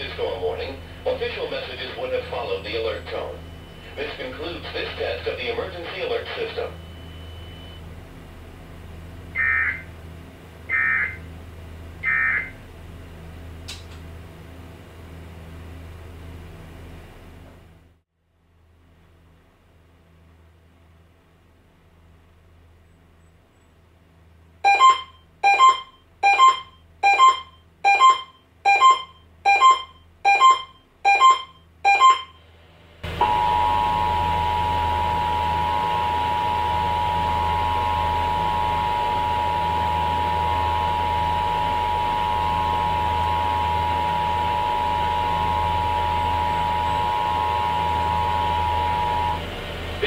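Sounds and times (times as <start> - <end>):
broadcast hiss: 0.0 - 6.8
short electronic beeps: 6.8 - 7.8, 9.4 - 9.9, 10.7 - 11.2, 12.0 - 12.6, 24.6 - 32.4
two-tone alert tone: 9.4 - 9.9, 10.7 - 11.2, 12.0 - 12.6, 24.7 - 32.4, 33.2 - 49.4.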